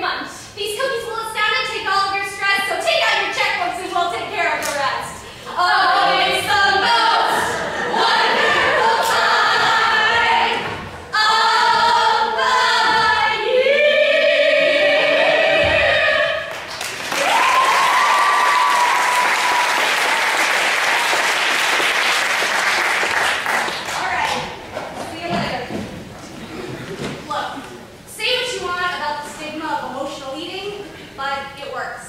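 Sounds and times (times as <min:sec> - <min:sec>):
group singing: 0:05.4 - 0:16.7
people clapping and cheering: 0:16.5 - 0:24.6
high whoop: 0:17.1 - 0:21.2.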